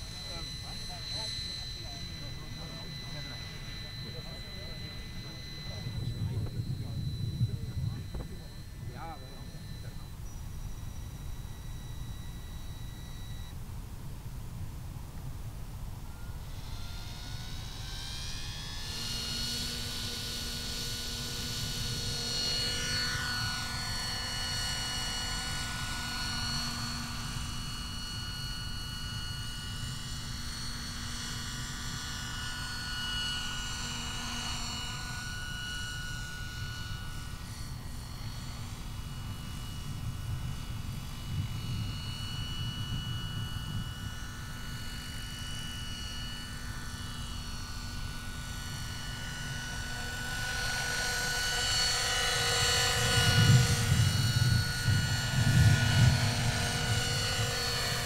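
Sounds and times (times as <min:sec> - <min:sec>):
rotor beating: 0:00.0 - 0:13.5
rc helicopter motor whine: 0:00.0 - 0:58.0.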